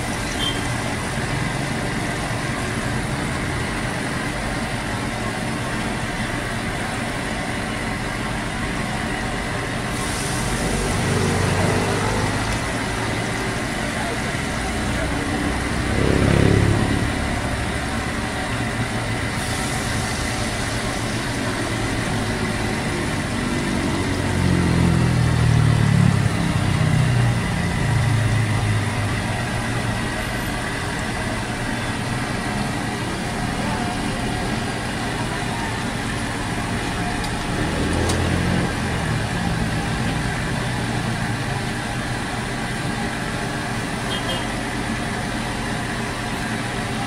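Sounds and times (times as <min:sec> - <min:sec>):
deep-frying sizzle in oil: 0:00.0 - 0:03.6.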